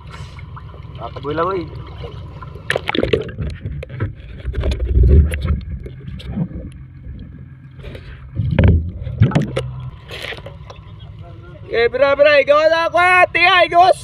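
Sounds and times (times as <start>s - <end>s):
boat engine running: 0.0s - 14.0s
heavy low thuds: 8.3s - 9.8s.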